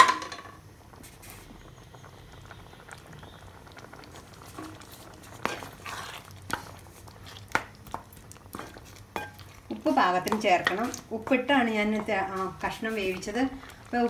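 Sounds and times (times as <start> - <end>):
curry simmering in a pan: 0.7 - 14.0
wooden spatula knocking pan: 9.2 - 13.4.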